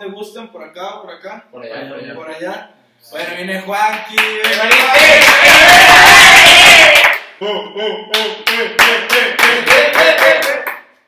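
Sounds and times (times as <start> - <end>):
hands clapping: 3.9 - 7.3, 8.1 - 11.0
young men yelling: 4.5 - 7.1.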